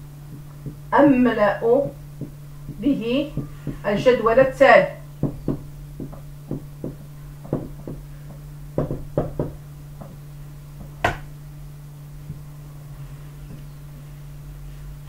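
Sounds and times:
steady low hum: 0.0s - 15.0s
marker tapping on whiteboard: 5.2s - 10.2s, 10.8s - 11.3s.

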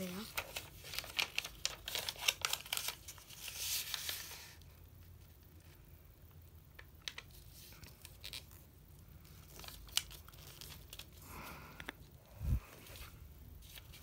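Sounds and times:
paper rustling and ticking: 0.0s - 4.6s, 6.7s - 11.2s, 12.8s - 14.0s.

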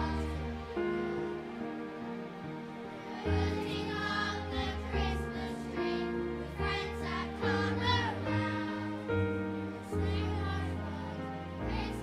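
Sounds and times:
children's choir singing: 0.0s - 12.0s.

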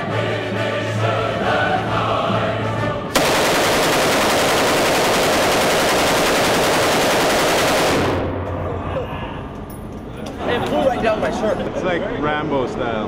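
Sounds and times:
machine gun automatic fire: 3.2s - 8.4s.

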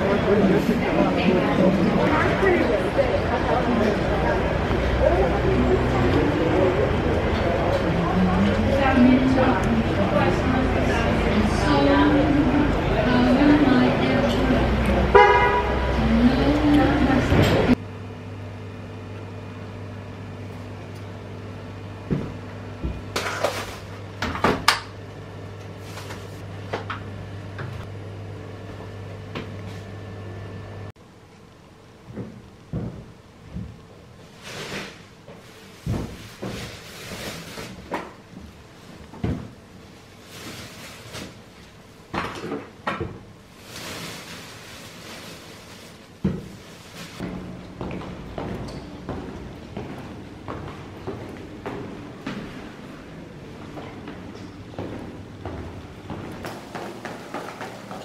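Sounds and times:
low electrical hum: 0.0s - 58.0s
plastic bag rustling: 34.3s - 37.9s, 40.1s - 41.6s, 43.5s - 47.2s.

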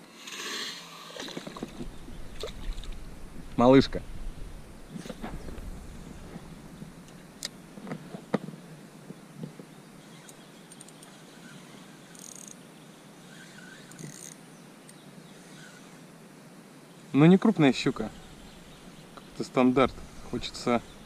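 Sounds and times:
faint bird chirps: 9.6s - 16.0s, 16.9s - 21.0s.

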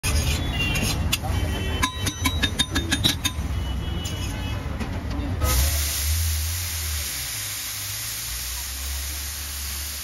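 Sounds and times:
water hissing on hot griddle: 5.5s - 10.0s.

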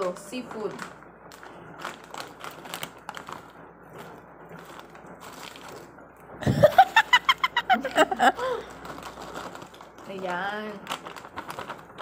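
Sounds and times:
plastic snack packet crinkling: 0.0s - 6.3s, 7.7s - 12.0s.

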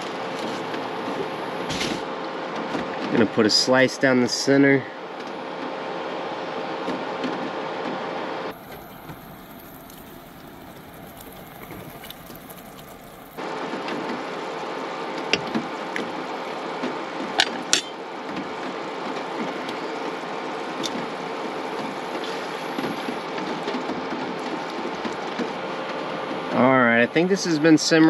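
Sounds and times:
rain hissing: 8.5s - 17.2s.

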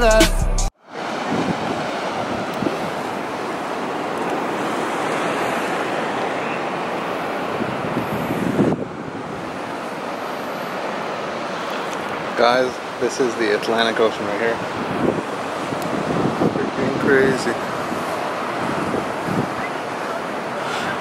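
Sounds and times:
wind on the microphone: 1.0s - 3.4s, 6.7s - 10.1s, 14.4s - 21.0s.

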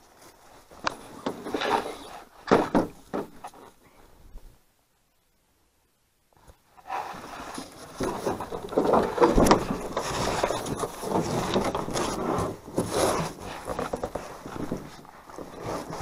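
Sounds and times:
hands and clothing scraping wooden canoe: 0.0s - 3.8s, 6.8s - 16.0s.

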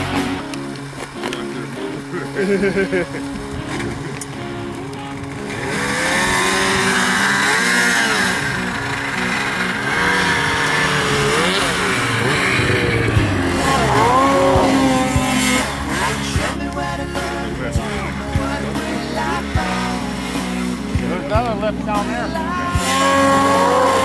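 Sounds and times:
snowmobile engine revving: 0.0s - 24.0s.

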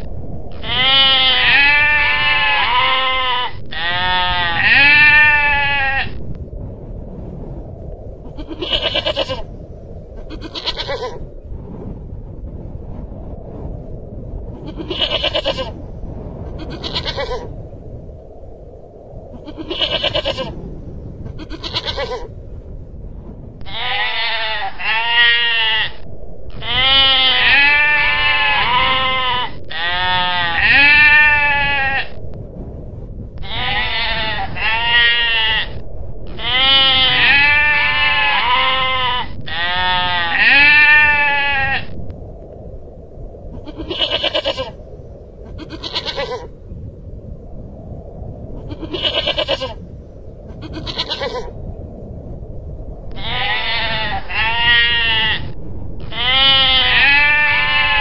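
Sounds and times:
rapid bleats: 0.6s - 6.1s, 8.4s - 9.4s, 10.3s - 11.2s, 14.7s - 15.8s, 16.6s - 17.5s, 19.5s - 20.5s, 21.4s - 22.3s, 23.7s - 26.0s, 26.6s - 32.2s, 33.4s - 35.7s, 36.4s - 41.9s, 43.7s - 44.8s, 45.6s - 46.5s, 48.7s - 49.8s, 50.6s - 51.5s, 53.2s - 58.0s.

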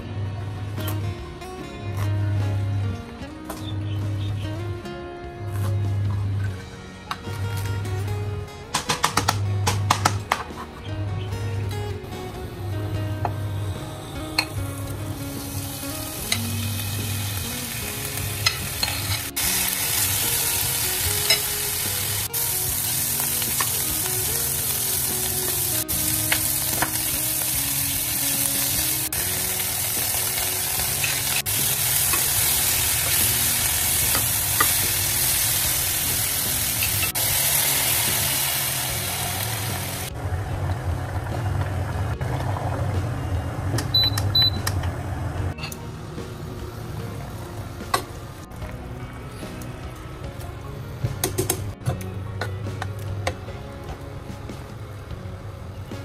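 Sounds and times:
pork sizzling in a pan: 15.3s - 40.1s.

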